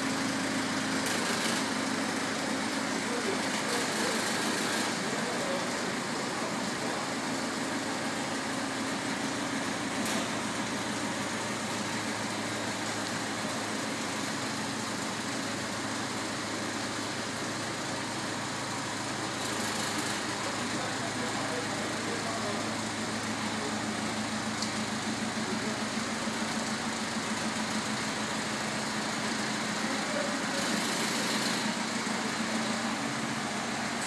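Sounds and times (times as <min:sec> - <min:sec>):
diesel engine running: 0:00.0 - 0:34.0.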